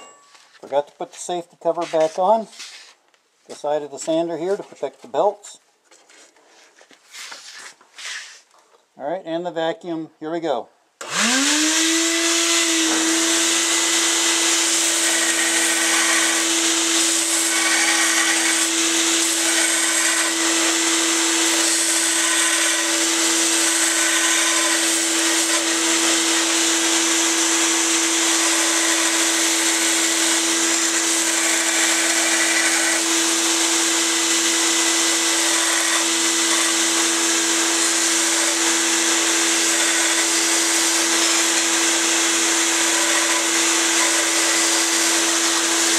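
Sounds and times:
belt sander whine: 11.0s - 45.9s.

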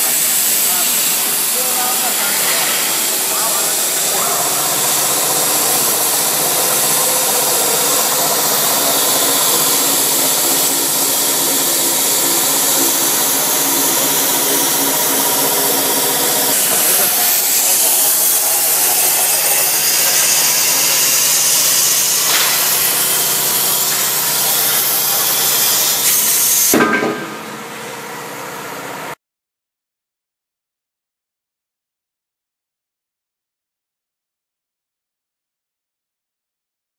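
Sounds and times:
machinery hiss: 0.0s - 26.8s
machinery hums: 0.0s - 29.2s.

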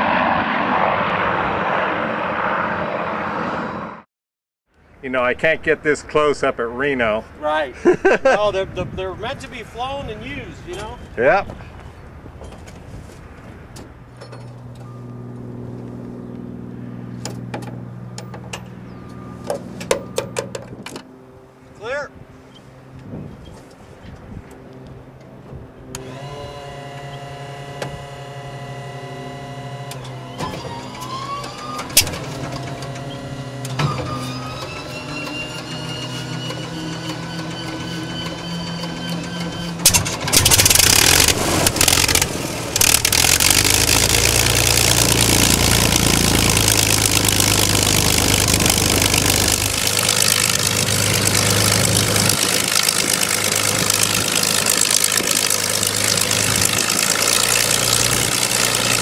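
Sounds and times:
aircraft engine sputtering and running: 0.0s - 4.0s, 9.0s - 59.0s
engine starter whining: 25.9s - 59.0s
starter clicks: 39.9s - 45.6s.

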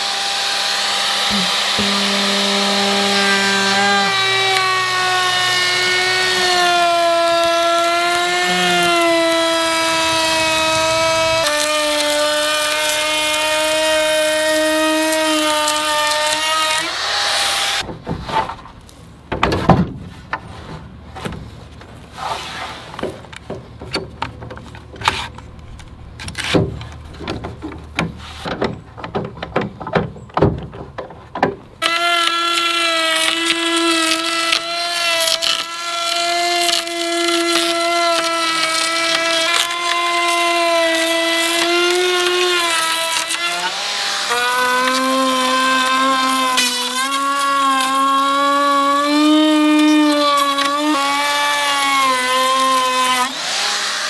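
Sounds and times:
electric router motor whine: 0.0s - 17.8s
boards knocking and clattering: 17.8s - 21.6s, 23.0s - 31.8s.

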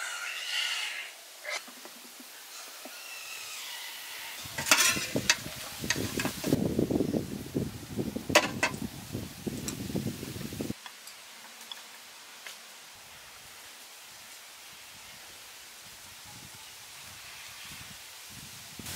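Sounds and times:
metal ladle scraping steamer tray: 2.8s - 6.6s.

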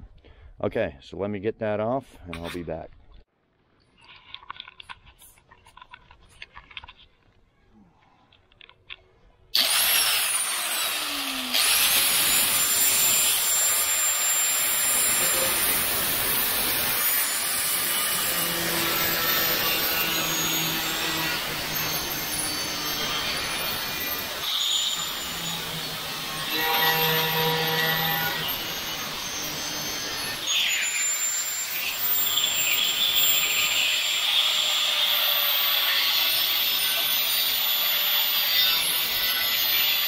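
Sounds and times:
angle grinder cutting steel: 9.6s - 40.0s.

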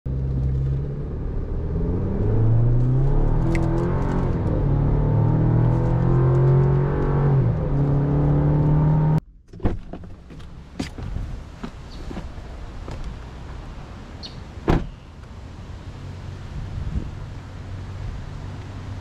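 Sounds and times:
car engine accelerating: 0.1s - 9.2s.

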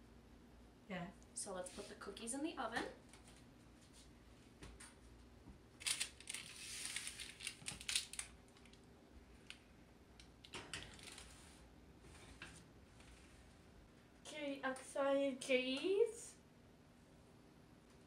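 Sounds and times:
paper rustling: 5.8s - 8.3s
baking sheet scraping: 6.4s - 7.4s.

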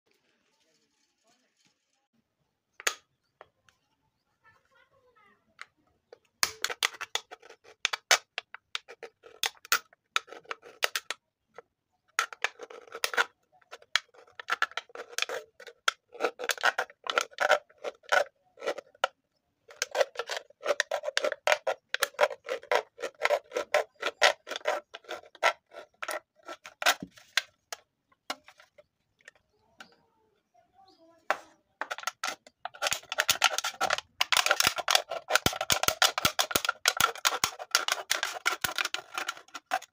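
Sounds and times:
blade scratching aluminium can: 6.4s - 11.2s, 12.2s - 27.7s, 31.3s - 39.9s.

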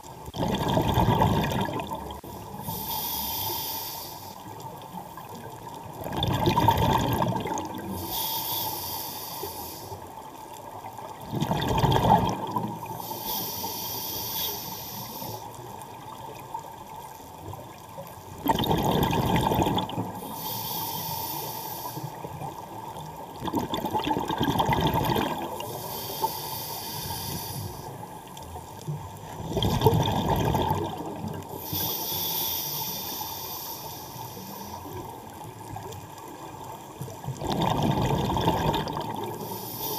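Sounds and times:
bubbly exhale gurgle: 0.0s - 3.0s, 5.2s - 8.2s, 11.2s - 13.6s, 18.3s - 20.5s, 22.1s - 26.4s, 29.2s - 32.0s, 37.0s - 39.9s
regulator inhalation hiss: 2.4s - 4.5s, 7.9s - 10.1s, 12.9s - 15.6s, 20.2s - 22.3s, 25.6s - 28.0s, 31.5s - 35.0s, 39.4s - 39.9s.

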